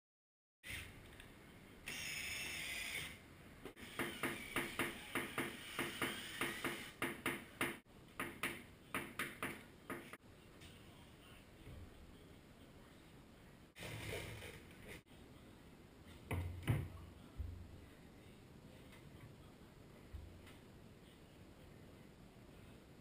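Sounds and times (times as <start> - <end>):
cordless drill driving screws: 1.9 - 3.2, 3.8 - 7.0.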